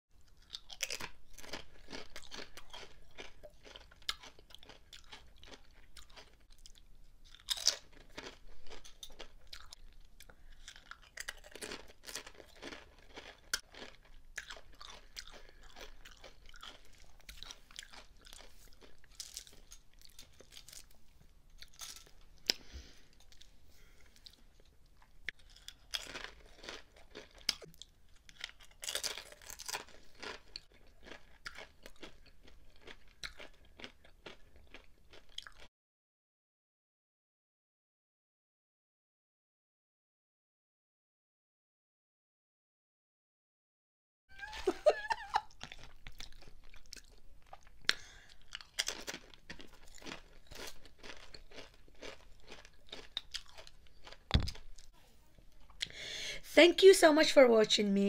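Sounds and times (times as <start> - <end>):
crunching chips: 0.2 - 23.5, 24.2 - 35.7, 44.4 - 54.9.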